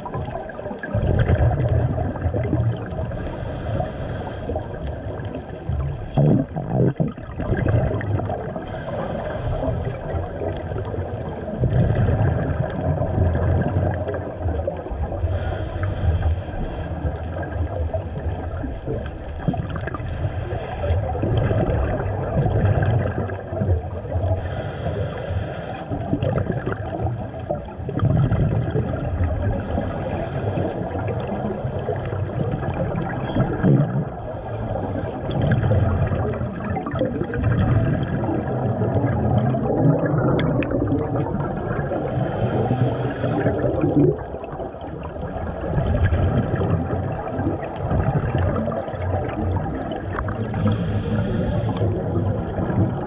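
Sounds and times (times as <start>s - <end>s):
bubbling exhaled air: 0.0s - 53.0s
hissing regulator inhale: 2.9s - 5.0s, 8.6s - 10.6s, 15.1s - 18.8s, 19.9s - 21.2s, 23.9s - 26.1s, 29.5s - 32.1s, 34.2s - 35.4s, 41.8s - 43.7s, 50.4s - 52.1s.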